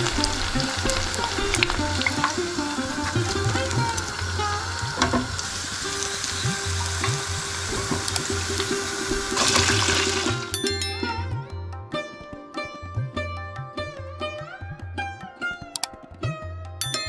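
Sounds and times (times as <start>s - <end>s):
sitar music: 0.0s - 17.0s
oil sizzling in deep fryer: 4.0s - 10.4s.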